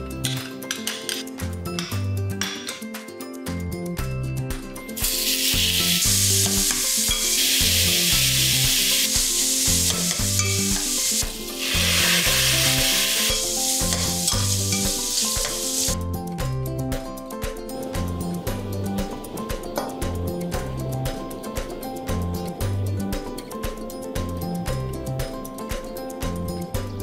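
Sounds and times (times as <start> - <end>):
background music: 0.0 - 27.0
meat sizzling in hot oil: 5.0 - 16.0.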